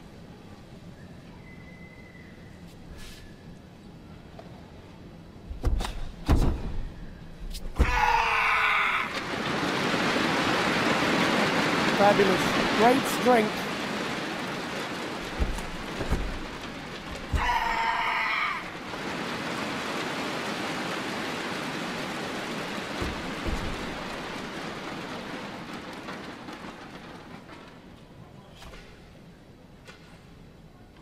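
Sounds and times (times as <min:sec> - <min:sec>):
person shouting: 0:07.8 - 0:09.1, 0:17.3 - 0:18.7.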